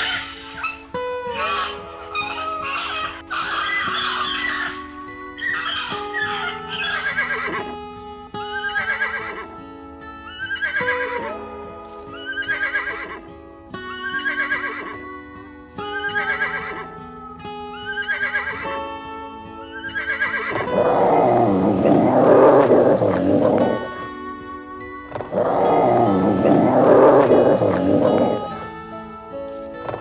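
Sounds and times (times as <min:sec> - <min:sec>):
horse neighing: 0:00.0 - 0:04.8, 0:05.4 - 0:07.7, 0:08.5 - 0:09.5, 0:10.3 - 0:11.4, 0:12.2 - 0:13.2, 0:14.0 - 0:15.0, 0:16.0 - 0:16.9, 0:17.8 - 0:18.9, 0:19.6 - 0:24.0, 0:25.2 - 0:28.6.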